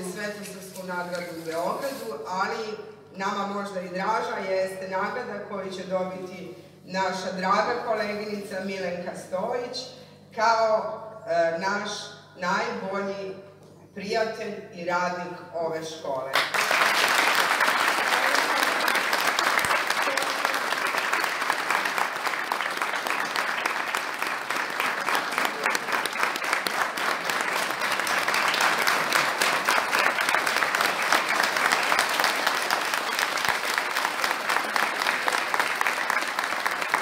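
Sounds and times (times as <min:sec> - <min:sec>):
audience applause: 0:16.4 - 0:37.0.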